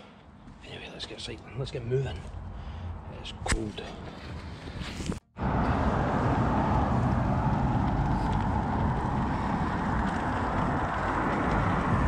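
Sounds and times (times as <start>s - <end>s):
bicycle road noise: 3.9s - 12.0s
wind rushing: 4.8s - 12.0s.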